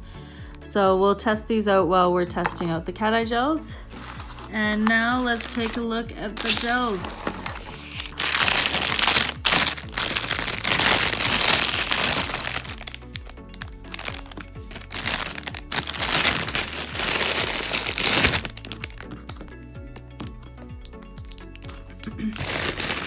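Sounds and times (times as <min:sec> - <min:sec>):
background music: 0:00.0 - 0:23.0
plastic bag crinkling: 0:04.7 - 0:05.8, 0:06.4 - 0:19.6, 0:21.2 - 0:23.0.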